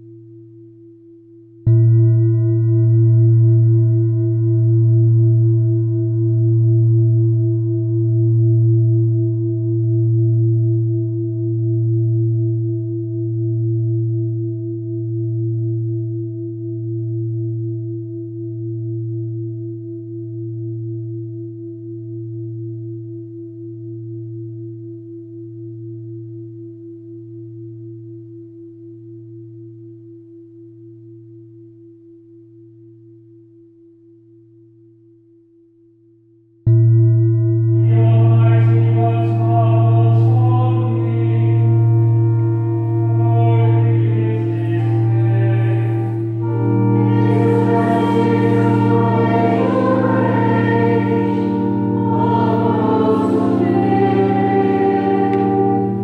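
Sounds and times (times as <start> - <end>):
deep metal bell tone ringing: 1.7 - 5.7, 36.7 - 38.4.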